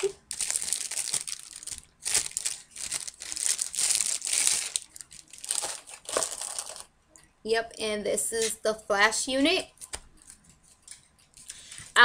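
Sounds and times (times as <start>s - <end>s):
plastic wrapping crinkling: 0.0s - 6.9s.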